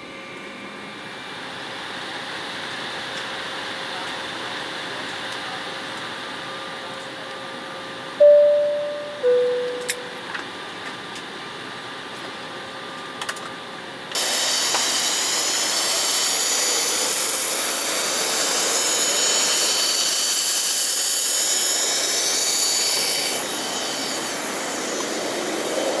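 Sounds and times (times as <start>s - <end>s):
jet engine whine: 0.0s - 26.0s
aircraft cabin chime: 8.2s - 10.3s.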